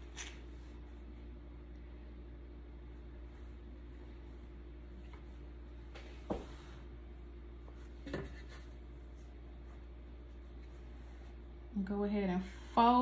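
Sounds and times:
steady low hum: 0.0 - 13.0
hands rubbing dough: 3.0 - 11.6.

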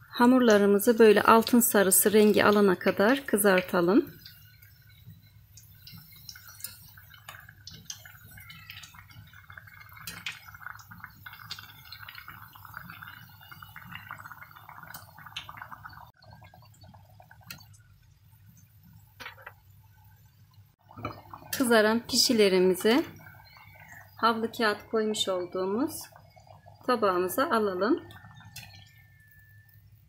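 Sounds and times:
hot oil sizzling and crackling: 0.0 - 30.0.

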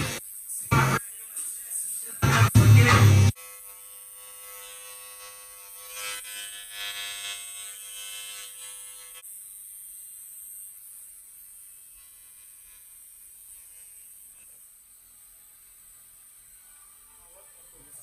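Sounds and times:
bass-heavy music: 0.0 - 1.0, 2.2 - 3.3
electric hair trimmer buzzing: 0.0 - 18.0.

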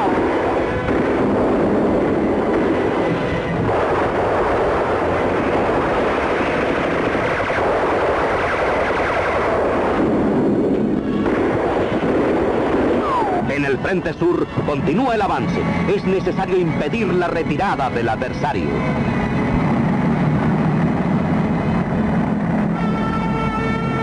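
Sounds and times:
gunfire and blasts: 0.2 - 13.5.

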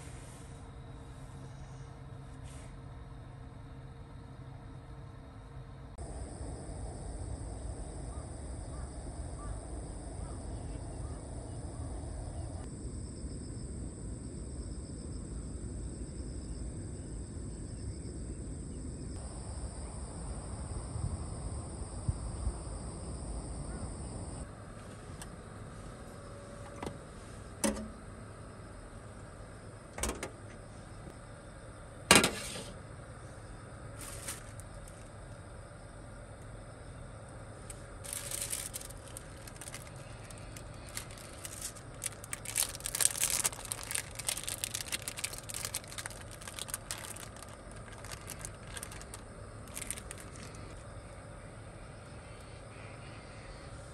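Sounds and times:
insect drone: 0.0 - 53.9
wind rumble: 6.1 - 24.5, 37.9 - 50.9
knocks and clunks: 30.0 - 30.6.

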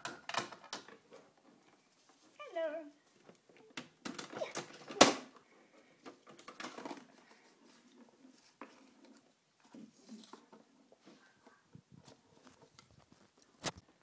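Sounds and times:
plastic toys clicking and rustling: 0.0 - 2.2, 3.1 - 10.9.

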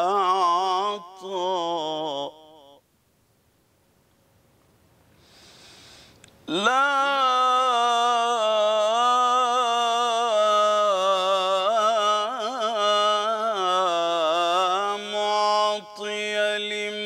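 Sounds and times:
man singing devotional chant: 0.0 - 2.8, 6.5 - 17.0.

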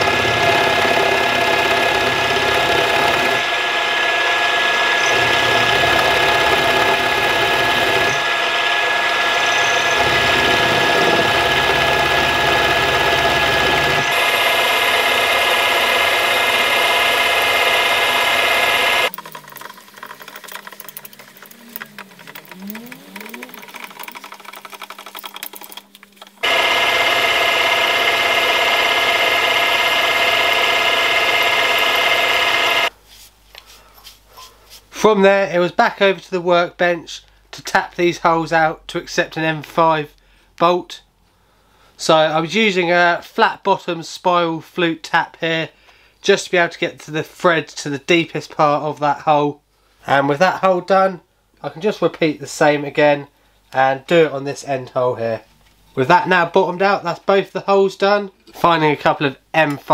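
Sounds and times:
milling machine running: 0.0 - 32.9.

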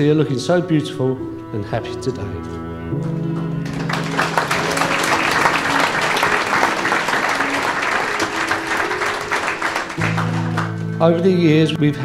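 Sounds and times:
crowd applauding: 3.6 - 11.0.

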